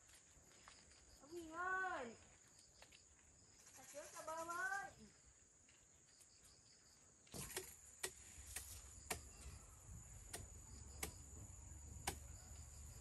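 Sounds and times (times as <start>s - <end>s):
high insect drone: 6.6s - 13.0s.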